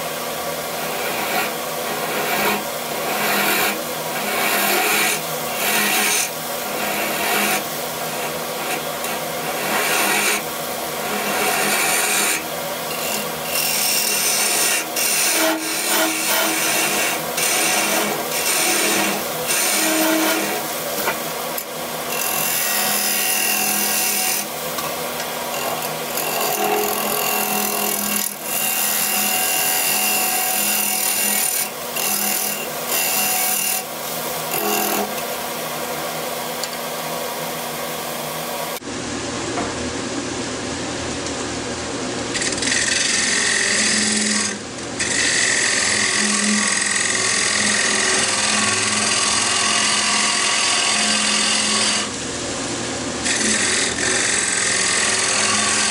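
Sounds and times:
lathe humming: 0:00.0 - 0:38.8, 0:42.4 - 0:52.1, 0:53.2 - 0:55.9
turning tool scraping wood: 0:00.8 - 0:35.7.

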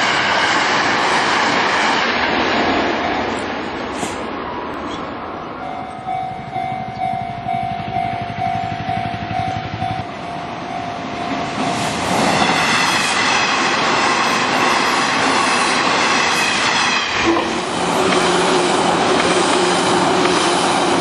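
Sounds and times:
train passing: 0:00.0 - 0:21.0
level crossing warning bell: 0:05.5 - 0:12.0.

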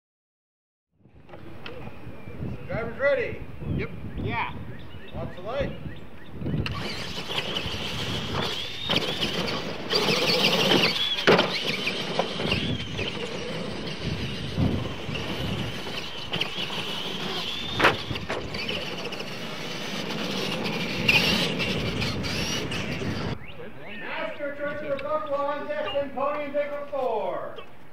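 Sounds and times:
toy truck motors whining: 0:06.5 - 0:23.4.

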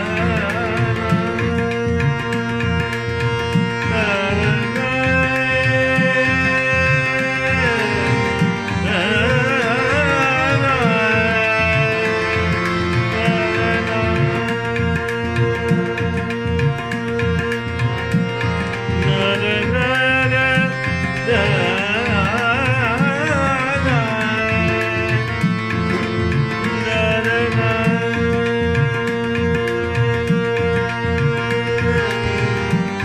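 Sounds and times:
tabla rhythm: 0:00.0 - 0:33.0
vibrato melodic line: 0:00.0 - 0:33.0.

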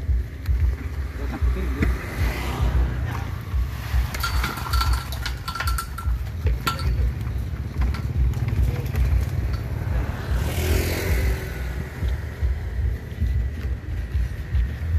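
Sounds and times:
metal clinks and scrapes: 0:03.9 - 0:10.1.

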